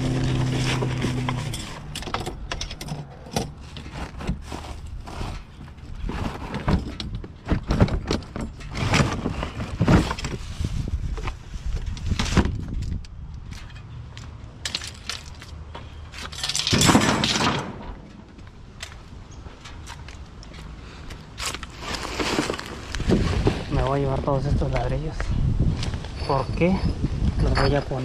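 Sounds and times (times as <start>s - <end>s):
hard items clattering: 0.0s - 10.4s
plastic bags rustling: 21.4s - 23.8s.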